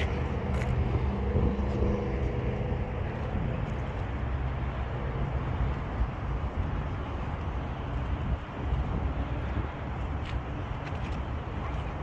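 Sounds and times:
outdoor traffic noise: 0:00.0 - 0:12.0
vehicle engine hum: 0:00.0 - 0:12.0.

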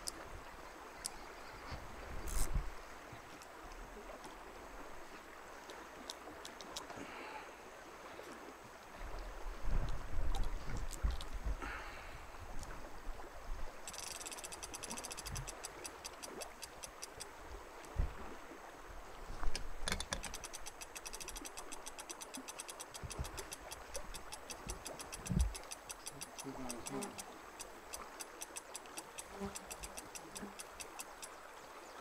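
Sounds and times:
fishing reel ratchet clicking: 0:13.9 - 0:17.3, 0:19.9 - 0:31.3.

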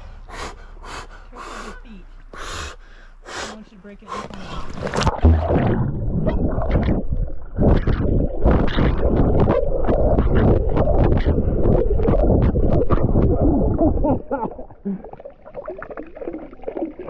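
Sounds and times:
dull knocks and splashes: 0:04.3 - 0:13.4
water rushing and bubbling underwater: 0:04.4 - 0:17.0.

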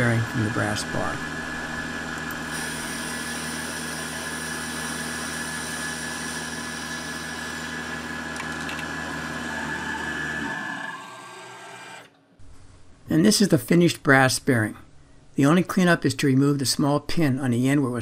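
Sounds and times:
lathe machining whine: 0:00.0 - 0:12.1.

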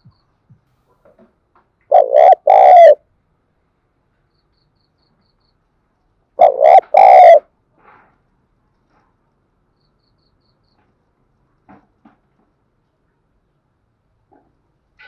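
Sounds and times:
dove cooing: 0:01.9 - 0:03.0, 0:06.4 - 0:07.4.

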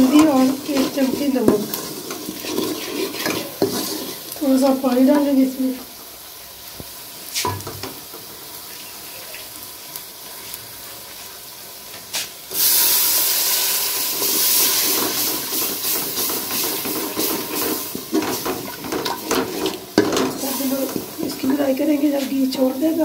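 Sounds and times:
masala frying faintly: 0:00.0 - 0:23.0
steam hissing and sizzling: 0:00.0 - 0:23.0.

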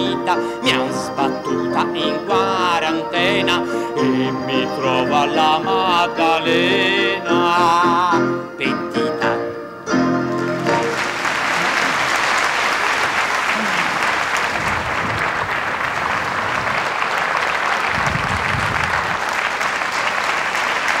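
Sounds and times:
audience applauding: 0:10.3 - 0:21.0.

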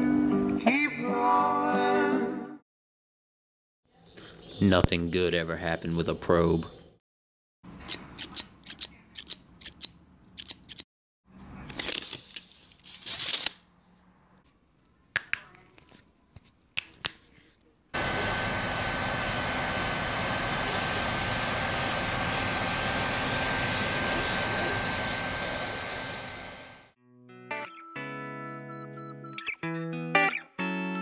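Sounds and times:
scissors snipping: 0:07.9 - 0:10.8
hot-air blower running: 0:18.0 - 0:27.0.

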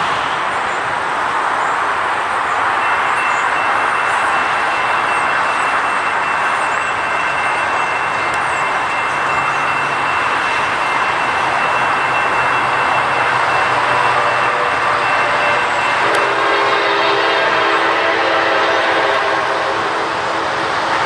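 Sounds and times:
steady rushing noise: 0:00.0 - 0:21.0
train horn chord: 0:13.6 - 0:20.2.

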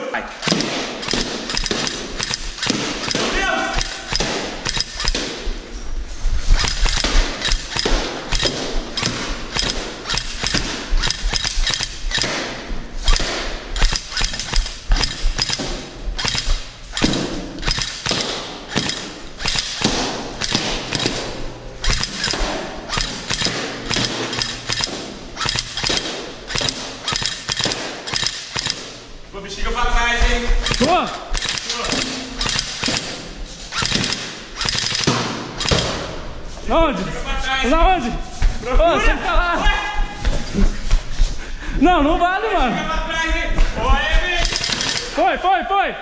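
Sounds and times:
airsoft rifle firing: 0:00.4 - 0:05.6, 0:06.5 - 0:29.2, 0:30.2 - 0:36.3, 0:44.4 - 0:45.2.

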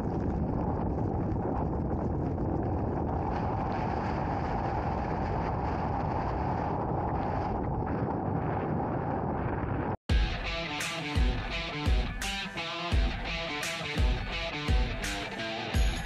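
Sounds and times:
wind on microphone: 0:00.0 - 0:10.0
guitar music with heavy beats: 0:10.1 - 0:16.0.

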